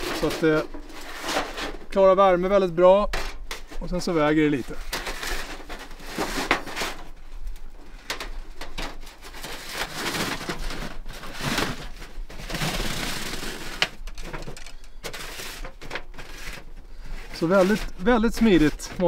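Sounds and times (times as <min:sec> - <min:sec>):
metal sheet scraping and squeaking: 0:00.0 - 0:19.0.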